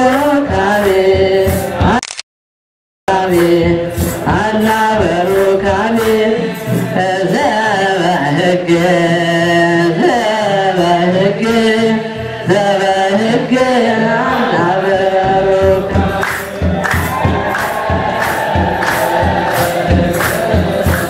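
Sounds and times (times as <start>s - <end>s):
choir chanting in unison: 0.0s - 1.9s, 3.1s - 21.0s
steady drum beat: 0.0s - 2.0s, 3.1s - 8.2s, 14.9s - 21.0s.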